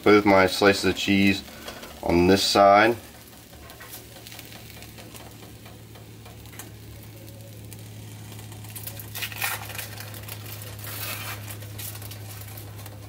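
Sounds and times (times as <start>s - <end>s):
omelet sizzling in a pan: 0.0s - 13.0s.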